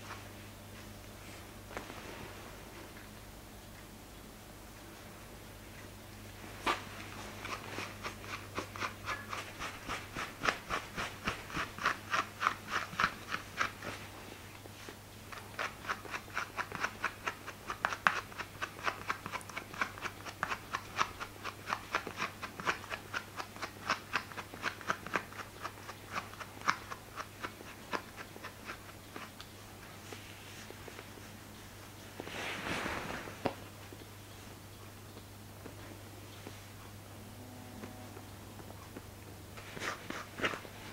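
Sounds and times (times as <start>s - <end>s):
scratchy brushing of fur: 6.4s - 33.7s, 39.6s - 40.9s.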